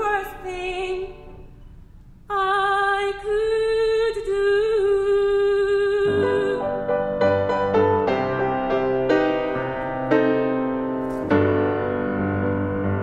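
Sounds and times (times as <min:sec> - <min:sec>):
woman singing with vibrato: 0:00.0 - 0:01.4, 0:02.3 - 0:06.9
grand piano playing: 0:06.0 - 0:13.0.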